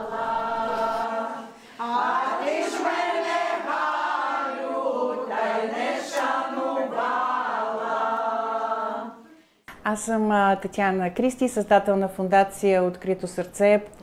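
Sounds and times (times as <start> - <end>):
group of women singing: 0.0 - 9.4.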